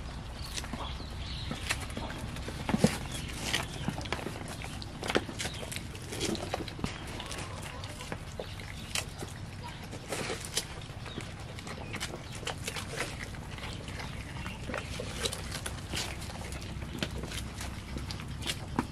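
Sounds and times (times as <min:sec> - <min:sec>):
goats chewing: 0:00.0 - 0:18.9.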